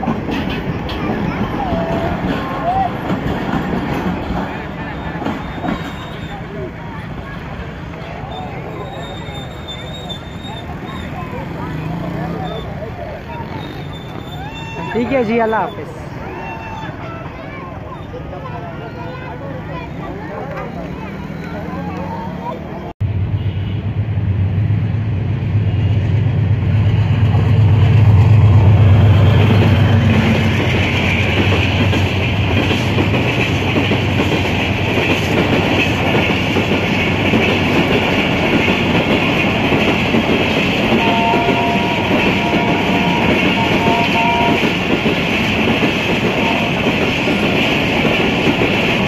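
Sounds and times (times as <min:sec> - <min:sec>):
train carriages rolling on rails: 0:00.0 - 0:22.9, 0:25.8 - 0:49.0
locomotive engine drone: 0:18.1 - 0:48.0.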